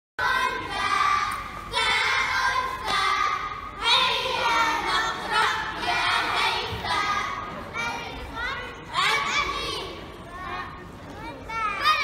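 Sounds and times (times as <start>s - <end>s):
children singing in unison: 0.2s - 7.4s.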